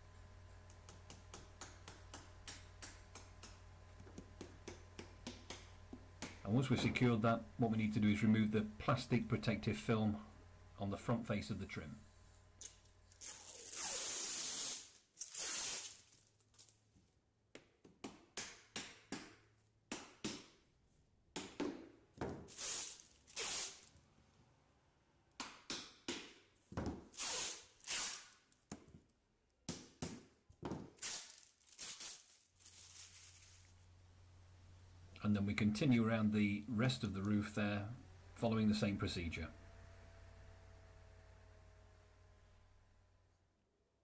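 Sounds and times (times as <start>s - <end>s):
plastic film peeling: 12.6s - 16.8s, 22.5s - 24.0s, 27.1s - 28.7s, 30.9s - 33.9s.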